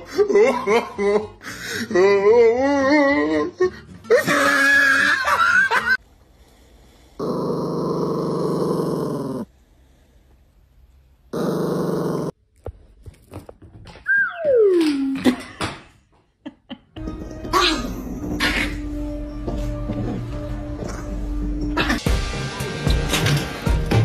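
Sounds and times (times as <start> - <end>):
small dog growling: 7.2 - 9.5, 11.3 - 12.4.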